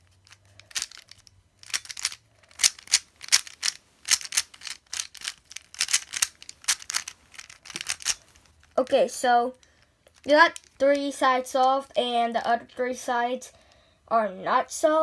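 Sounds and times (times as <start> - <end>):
puzzle cube clicking: 0.2 - 8.4, 10.2 - 11.1.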